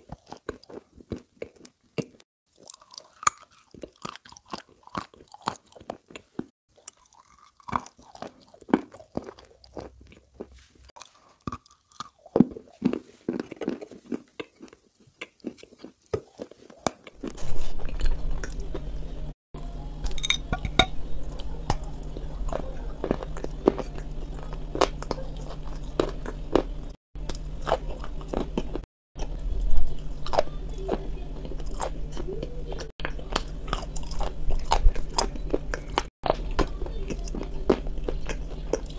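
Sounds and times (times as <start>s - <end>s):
biscuits crunching and chewing: 0.0s - 19.0s, 21.2s - 38.9s
steady low hum: 17.2s - 38.9s.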